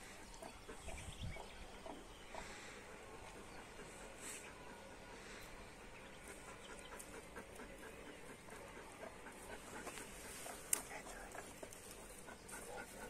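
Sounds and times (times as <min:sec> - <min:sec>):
dogs panting: 0:00.0 - 0:13.0.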